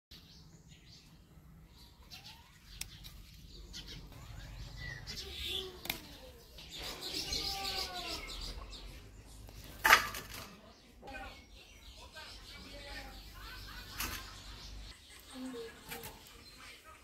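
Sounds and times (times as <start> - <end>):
flower stems snapping: 5.8 - 6.2.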